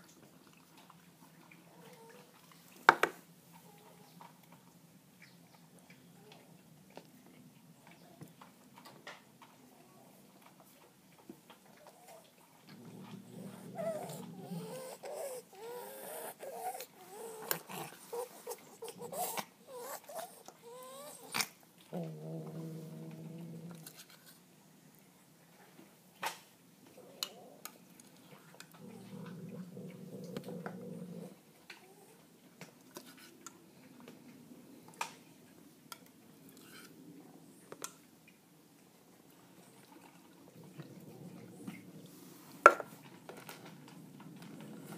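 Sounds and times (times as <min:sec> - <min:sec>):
dog whining: 0:13.4 - 0:21.4.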